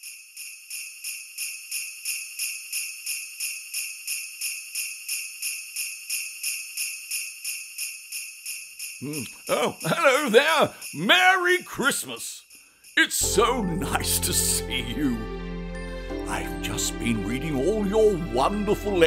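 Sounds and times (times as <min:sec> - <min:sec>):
sleigh bells jingling: 0:00.0 - 0:19.0.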